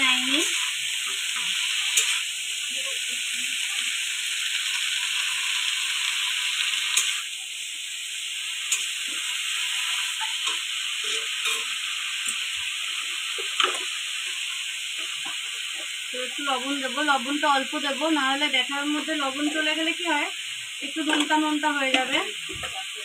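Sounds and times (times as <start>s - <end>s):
leaves sizzling in oil: 0.0s - 23.0s
metal spatula scraping a pan: 0.2s - 2.3s, 8.7s - 16.0s.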